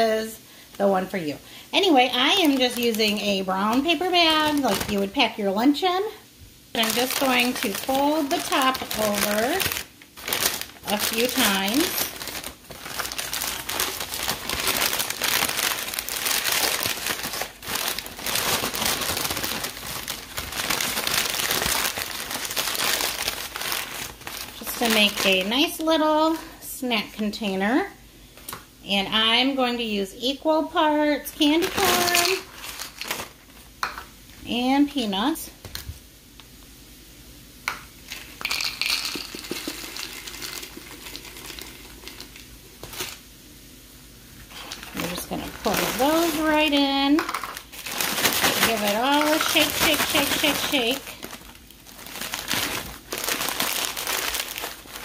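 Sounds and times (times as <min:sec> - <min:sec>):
paper bag crinkling: 0:02.1 - 0:05.3, 0:06.8 - 0:25.8, 0:31.6 - 0:33.6, 0:44.5 - 0:55.0
peanuts rattling into a bowl: 0:38.1 - 0:43.2, 0:45.1 - 0:51.1.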